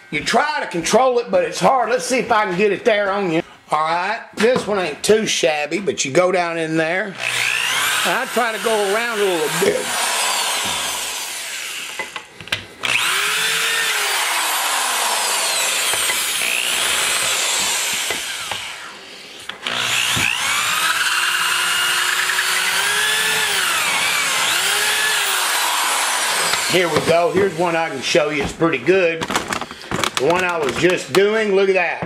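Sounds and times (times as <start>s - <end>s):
die grinder whining on metal: 7.2s - 27.9s.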